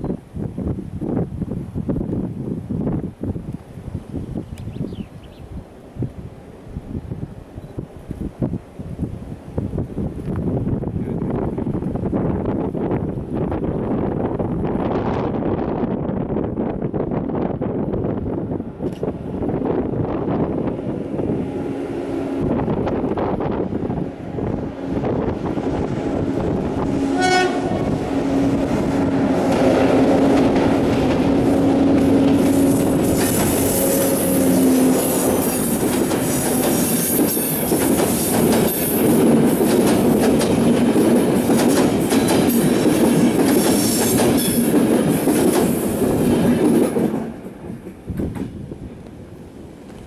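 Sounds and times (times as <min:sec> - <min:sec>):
train horn blast: 0:24.3 - 0:30.7, 0:31.3 - 0:35.6
train wheels clattering on rails: 0:29.0 - 0:48.6.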